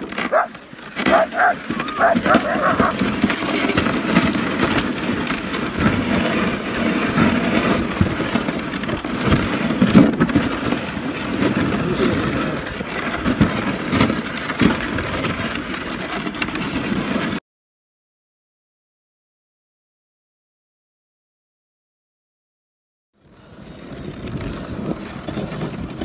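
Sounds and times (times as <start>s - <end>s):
sled frame rattling and knocking: 0.0s - 17.4s, 23.9s - 26.0s
sled runners scraping on snow: 0.0s - 17.4s, 23.2s - 26.0s.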